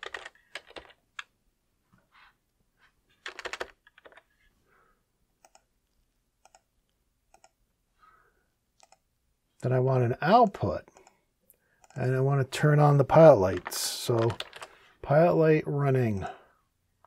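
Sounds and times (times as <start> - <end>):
typing on computer keyboard: 0.0 - 1.3, 3.2 - 4.2, 6.4 - 6.7, 13.5 - 14.7.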